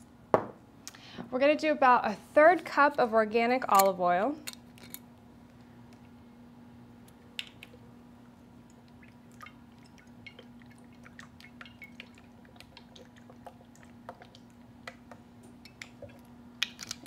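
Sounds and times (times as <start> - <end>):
steady low hum: 0.0 - 17.0
oil pouring with small splashes: 8.6 - 15.0.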